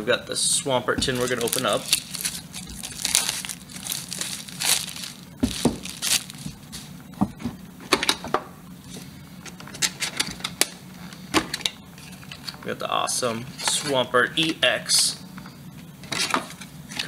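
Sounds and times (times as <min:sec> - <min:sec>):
plastic packaging crinkling: 0:01.0 - 0:06.9.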